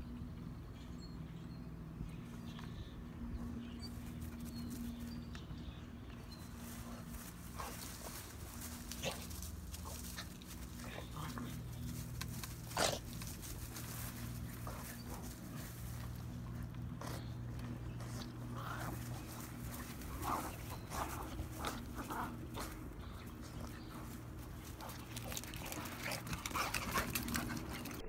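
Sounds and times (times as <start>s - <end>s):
steady low hum: 0.0s - 28.0s
dogs play-fighting noises: 1.2s - 28.0s.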